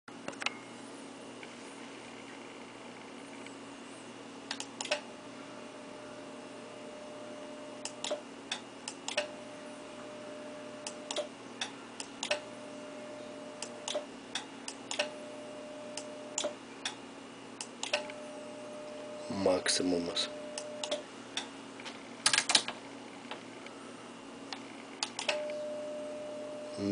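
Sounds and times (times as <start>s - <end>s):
constant low hum: 0.1s - 26.9s
sharp relay clicks: 7.8s - 9.3s, 10.8s - 12.5s, 13.6s - 15.2s, 17.6s - 18.2s, 20.6s - 21.5s, 22.2s - 22.7s, 24.5s - 25.6s.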